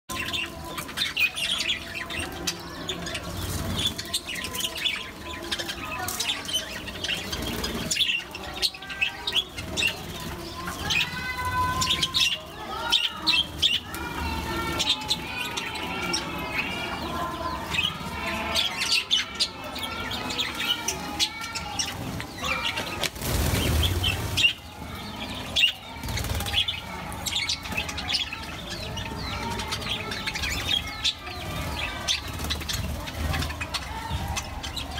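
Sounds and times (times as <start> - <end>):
wings flapping: 20.5 - 28.2.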